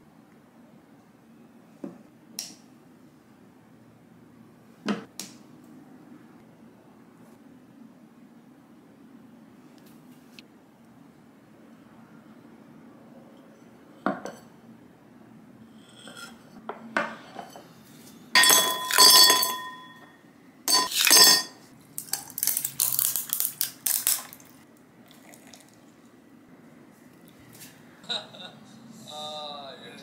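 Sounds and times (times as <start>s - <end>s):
ice cubes clattering into glass: 18.4s - 20.0s, 20.7s - 24.5s.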